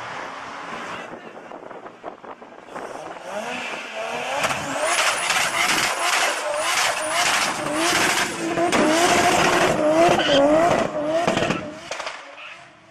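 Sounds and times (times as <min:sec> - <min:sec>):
car engine revving: 0:02.6 - 0:12.9.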